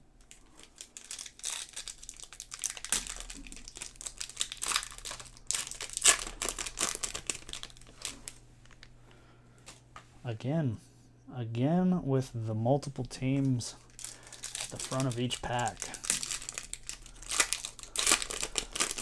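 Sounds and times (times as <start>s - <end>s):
foil wrapper crinkling: 0.2s - 8.9s, 13.2s - 19.0s.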